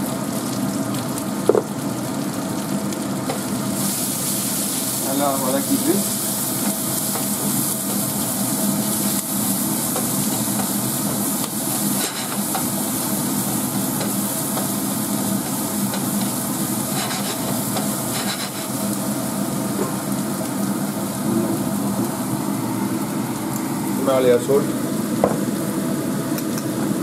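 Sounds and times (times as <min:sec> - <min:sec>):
onion and spices sizzling in oil: 0:00.0 - 0:27.0
wooden spatula scraping pan: 0:16.9 - 0:17.5.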